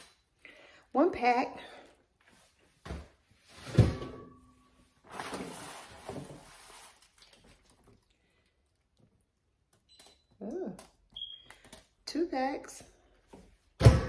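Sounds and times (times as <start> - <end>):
meat packaging rustling: 5.0 - 8.1
thud: 13.8 - 14.0.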